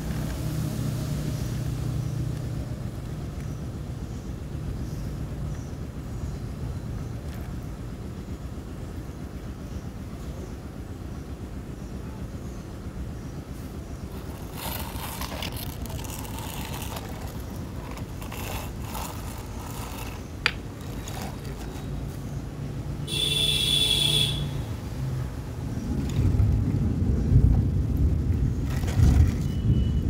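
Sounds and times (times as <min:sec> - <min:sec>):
small electric motor whine: 0:14.1 - 0:22.2
low rumbling noise: 0:24.5 - 0:30.0.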